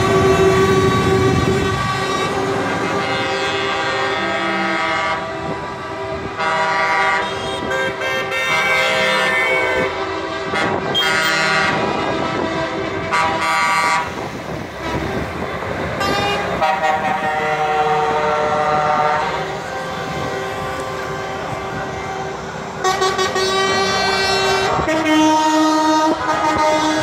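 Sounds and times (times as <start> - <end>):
truck air horn blasts: 0.0 - 27.0
truck engines running: 0.0 - 27.0.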